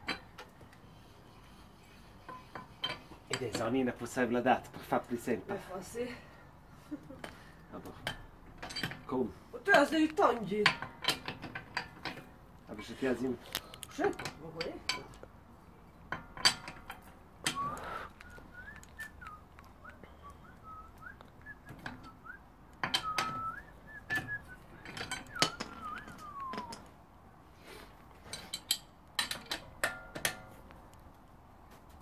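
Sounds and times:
person whistling a tune: 0:17.5 - 0:26.9
metallic clicks of tool on bolts: 0:28.3 - 0:30.5.

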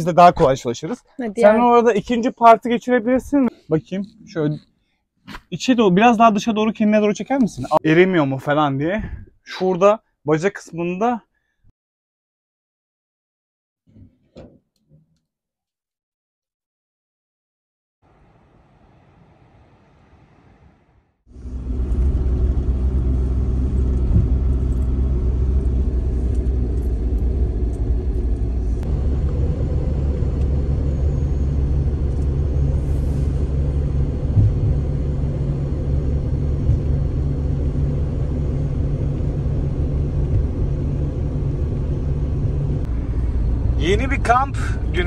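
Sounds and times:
car engine and road noise: 0:18.0 - 0:45.0.

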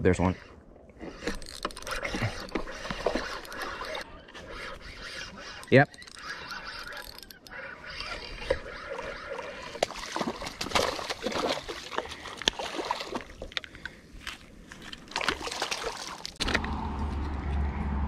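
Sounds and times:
fish splashing at water surface: 0:08.8 - 0:13.5, 0:15.1 - 0:16.4.

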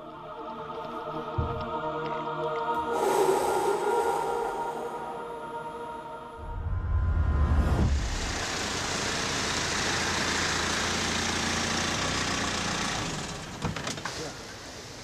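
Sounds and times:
deep low rumble: 0:06.3 - 0:08.6.

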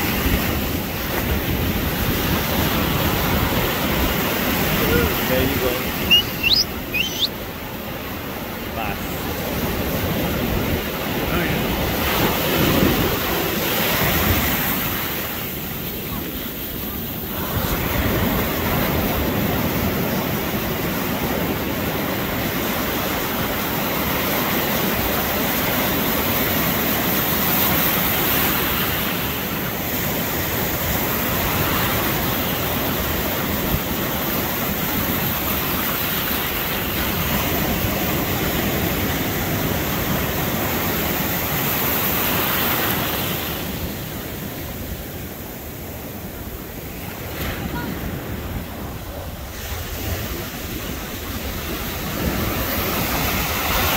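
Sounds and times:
ocean surf breaking: 0:00.0 - 0:53.9.

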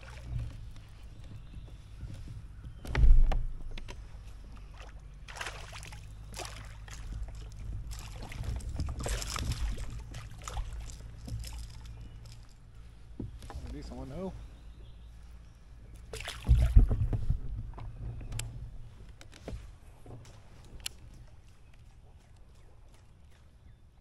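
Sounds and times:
dull thump: 0:02.8 - 0:03.9, 0:16.3 - 0:18.0
fish splashing at surface: 0:05.3 - 0:12.0.

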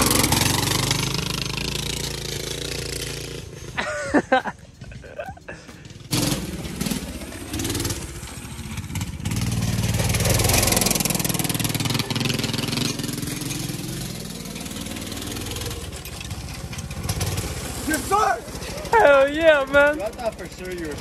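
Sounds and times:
go-kart engine revving: 0:00.0 - 0:21.0
gravel spraying from tyres: 0:06.1 - 0:20.9.

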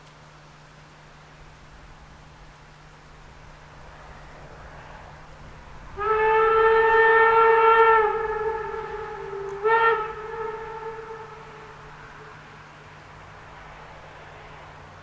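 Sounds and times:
steam locomotive whistle: 0:05.8 - 0:13.0.

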